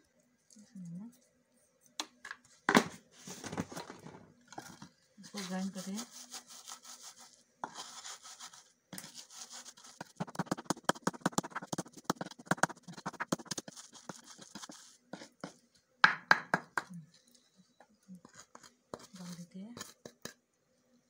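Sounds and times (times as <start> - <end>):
stone pounding knocks: 16.0 - 16.9.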